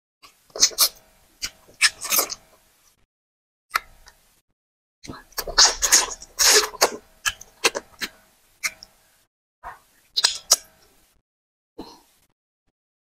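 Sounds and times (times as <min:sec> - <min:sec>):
wet mouth eating sounds: 0:00.5 - 0:02.5, 0:05.0 - 0:08.9, 0:10.2 - 0:10.7.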